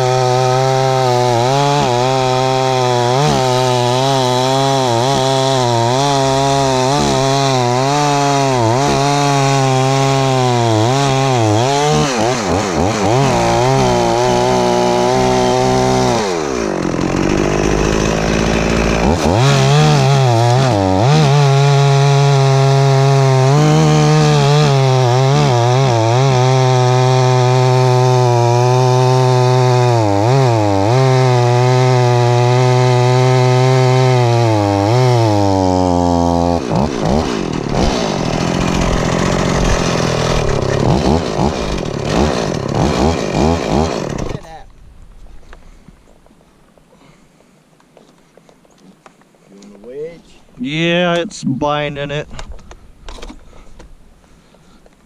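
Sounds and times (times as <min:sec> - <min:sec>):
chainsaw cutting tree trunk: 0:00.0 - 0:44.7.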